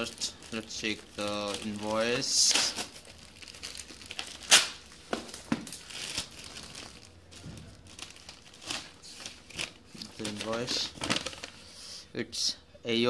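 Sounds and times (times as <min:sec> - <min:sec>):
cardboard and paper rustling: 0:00.0 - 0:11.6
paper crackling: 0:00.0 - 0:11.7.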